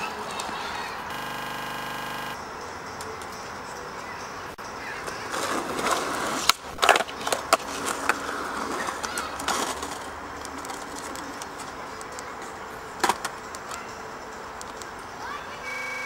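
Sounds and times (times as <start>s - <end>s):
skateboard wheels rolling on concrete: 0.0s - 16.0s
skateboard clacking on ground: 4.8s - 15.4s.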